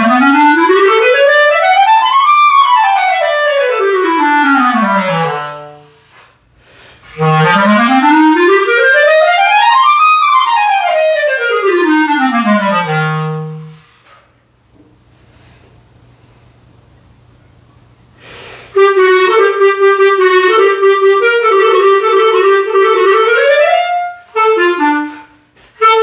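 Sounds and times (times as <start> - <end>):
clarinet playing scales: 0.0 - 6.2, 7.0 - 14.0, 18.7 - 26.0.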